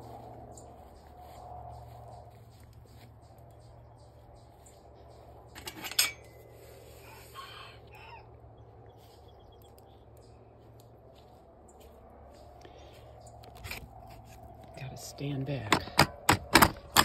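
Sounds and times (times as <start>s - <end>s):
chain-link gate rattling: 5.5s - 6.4s
rooster crowing: 6.9s - 8.4s.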